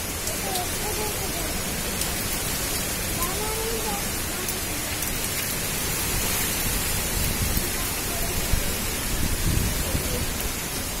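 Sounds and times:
storm wind through trees: 0:00.0 - 0:11.0
wind buffeting microphone: 0:02.9 - 0:11.0.

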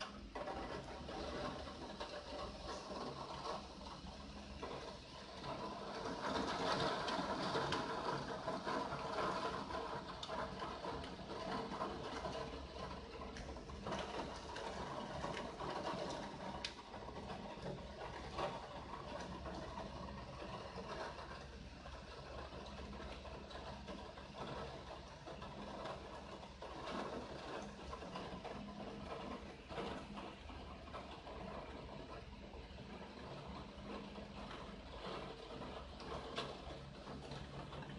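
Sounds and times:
rain pattering on window: 0:00.0 - 0:37.9.

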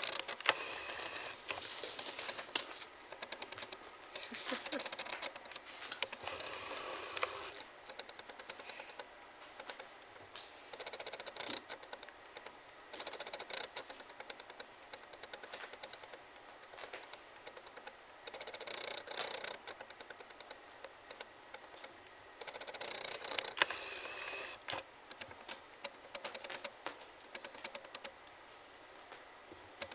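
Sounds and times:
kitten paws clicking and patting: 0:00.0 - 0:23.7, 0:24.5 - 0:29.9
tinsel ball crinkling: 0:04.1 - 0:06.0.

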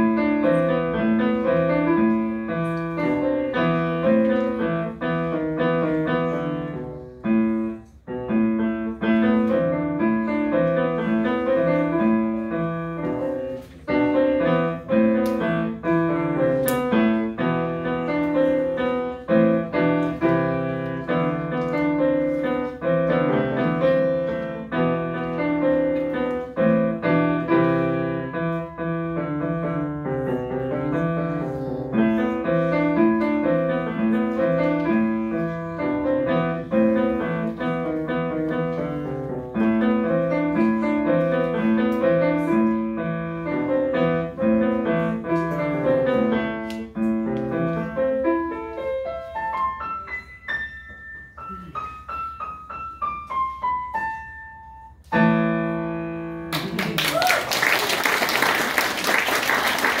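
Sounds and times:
solo grand piano: 0:00.0 - 1:00.0
audience applause: 0:56.5 - 1:00.0.

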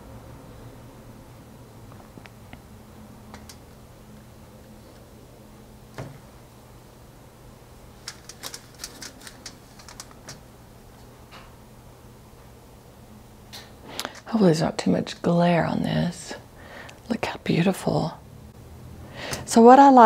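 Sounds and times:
tile clicking on metal pins: 0:08.1 - 0:10.4.

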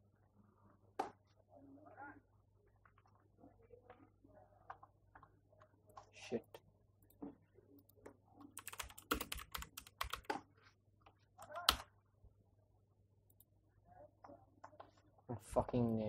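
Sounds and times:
computer keyboard typing: 0:07.8 - 0:10.4, 0:11.4 - 0:11.9.

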